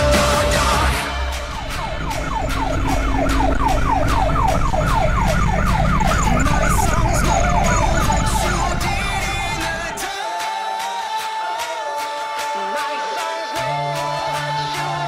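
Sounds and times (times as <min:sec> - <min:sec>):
truck engine hum: 0:00.0 - 0:10.0
fire truck siren: 0:00.0 - 0:10.8.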